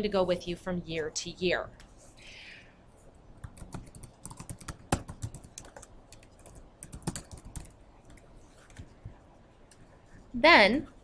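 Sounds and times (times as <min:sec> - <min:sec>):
computer keyboard typing: 0:03.4 - 0:09.2.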